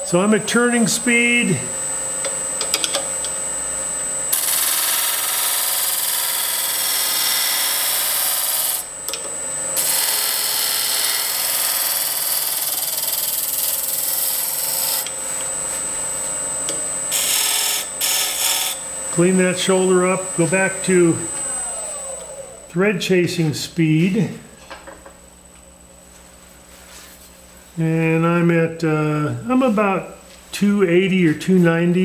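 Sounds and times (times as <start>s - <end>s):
lathe tool scraping wood: 4.3s - 8.9s, 9.8s - 16.0s, 16.6s - 22.5s.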